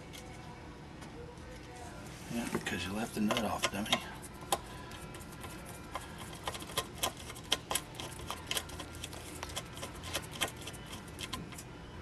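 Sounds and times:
hand tools clicking and tapping: 0:03.2 - 0:04.6.

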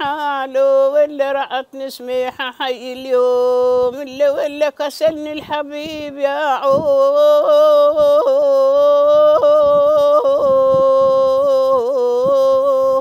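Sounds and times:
woman singing long note: 0:06.3 - 0:13.0.

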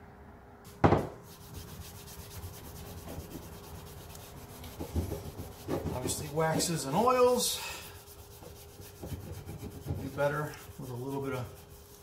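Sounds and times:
sharp knock: 0:00.8 - 0:01.2
glove rubbing on wood: 0:01.0 - 0:12.0.

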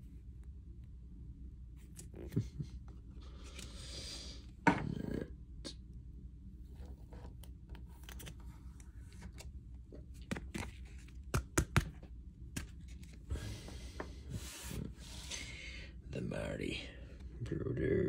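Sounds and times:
cards sliding rustle: 0:06.7 - 0:09.5, 0:10.1 - 0:13.7
cards clicking and scraping: 0:06.8 - 0:13.2
card snaps: 0:10.2 - 0:12.8.

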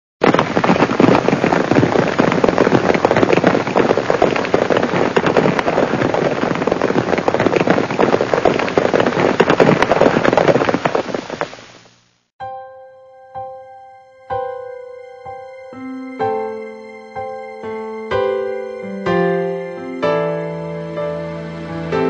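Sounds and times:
horses galloping on hard ground: 0:00.2 - 0:11.7.

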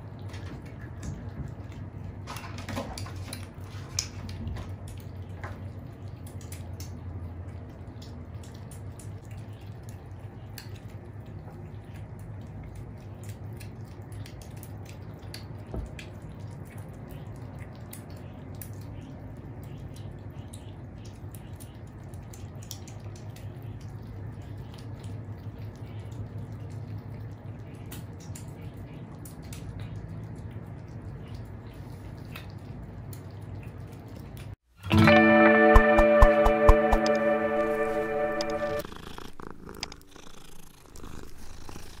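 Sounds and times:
cats crunching dry kibble: 0:38.8 - 0:42.0.

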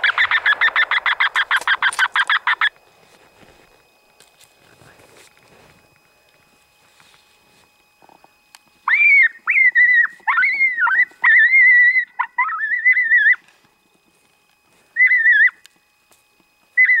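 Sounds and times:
coyote yelping whines: 0:00.0 - 0:02.8, 0:08.8 - 0:13.5, 0:14.9 - 0:15.7, 0:16.7 - 0:17.0.

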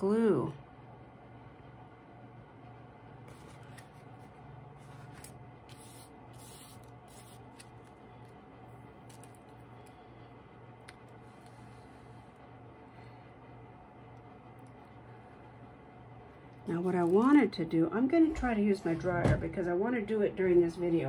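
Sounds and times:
low steady hum: 0:00.0 - 0:21.0
paper rustling and crinkling: 0:03.3 - 0:06.0.

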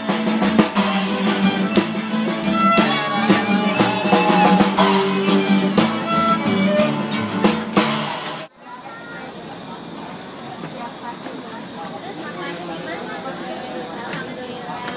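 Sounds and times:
acoustic guitar strumming: 0:00.0 - 0:08.5.

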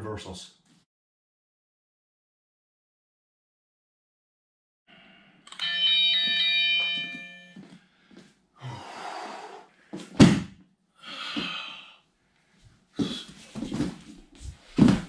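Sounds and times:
bell ringing: 0:05.5 - 0:07.7
body thumping onto foam mats: 0:10.0 - 0:10.6, 0:13.0 - 0:15.0.

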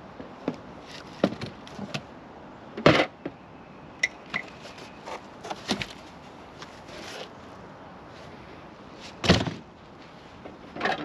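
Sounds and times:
cardboard and plastic rustling: 0:04.4 - 0:07.4
cardboard scrape or crumple: 0:06.7 - 0:07.3.

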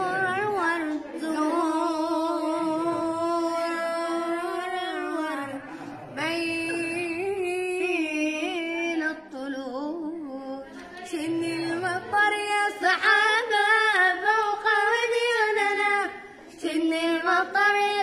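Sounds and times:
boys singing unaccompanied: 0:00.0 - 0:18.0.

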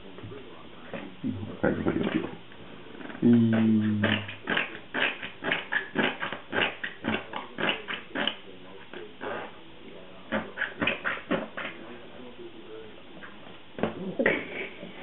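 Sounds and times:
baby grunting: 0:03.2 - 0:04.4.

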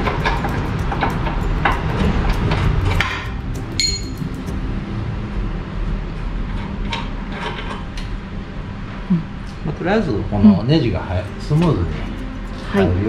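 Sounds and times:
steady low hum: 0:00.0 - 0:13.0
metal tools clinking: 0:03.8 - 0:04.2.

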